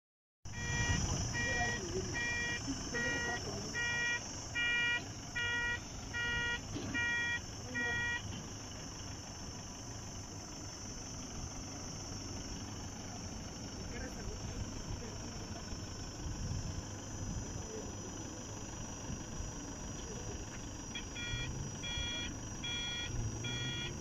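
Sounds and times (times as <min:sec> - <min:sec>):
reversing beeper: 0:00.5 - 0:08.4, 0:20.9 - 0:24.0.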